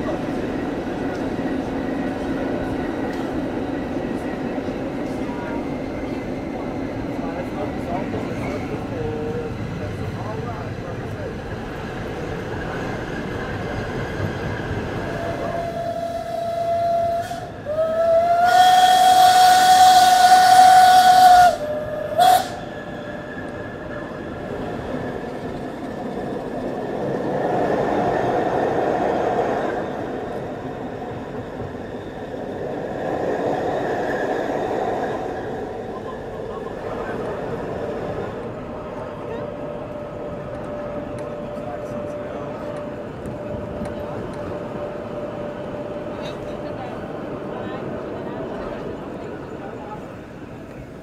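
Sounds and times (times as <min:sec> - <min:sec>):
steam locomotive whistle: 0:15.1 - 0:22.7.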